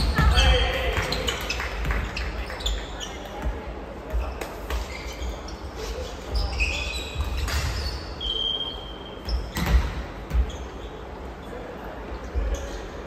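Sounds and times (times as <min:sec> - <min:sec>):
short high squeaks: 0:04.8 - 0:09.8.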